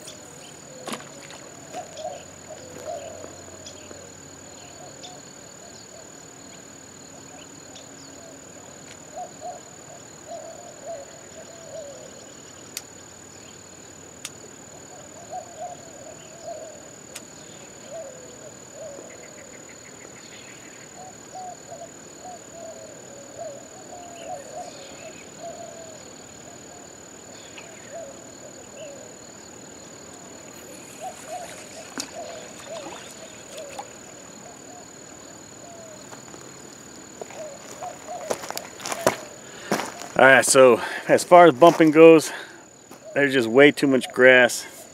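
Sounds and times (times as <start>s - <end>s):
warbling animal calls: 0.0s - 6.1s, 17.5s - 36.5s, 37.1s - 41.1s
steady hiss: 0.0s - 44.9s.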